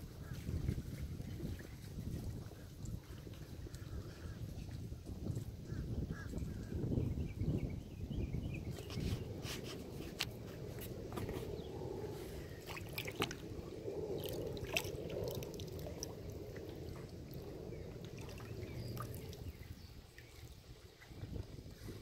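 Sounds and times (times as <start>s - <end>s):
water splashing against a kayak: 8.8s - 22.0s
sharp drips and clicks: 12.6s - 13.5s, 14.1s - 20.3s.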